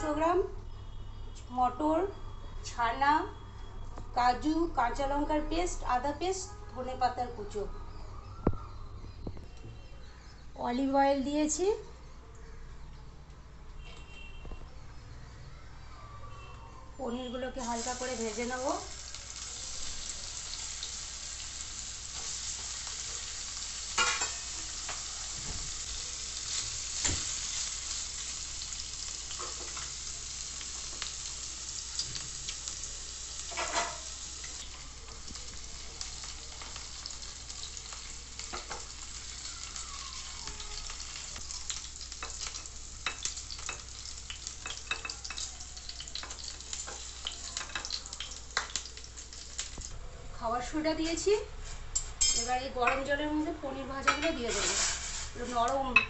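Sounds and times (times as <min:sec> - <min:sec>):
cheese sizzling in a frying pan: 0:17.5 - 0:50.0, 0:54.0 - 0:56.0
small crackles and taps: 0:40.4 - 0:49.9.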